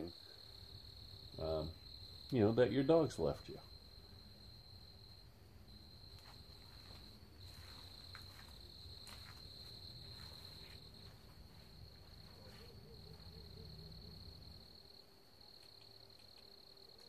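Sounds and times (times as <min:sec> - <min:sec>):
night insects trilling: 0:00.0 - 0:17.0
soft footsteps in grass: 0:05.7 - 0:13.5.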